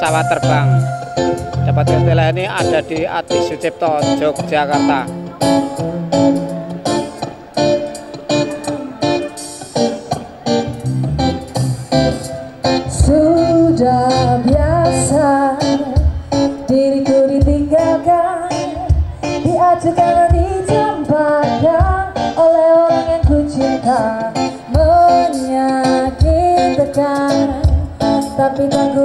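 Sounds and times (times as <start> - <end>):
steady beat: 0.0 - 13.6
guitar accompaniment: 0.0 - 29.0
woman singing: 12.9 - 29.0.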